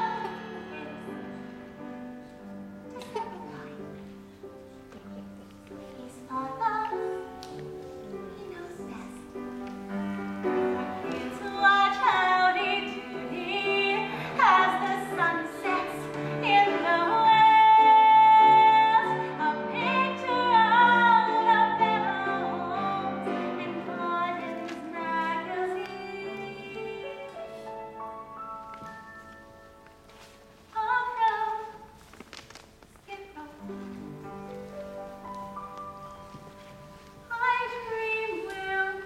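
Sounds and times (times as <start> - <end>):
instrumental accompaniment: 0.0 - 39.0
woman singing a ballad: 6.0 - 7.4, 10.7 - 27.7, 30.7 - 32.0, 37.2 - 39.0.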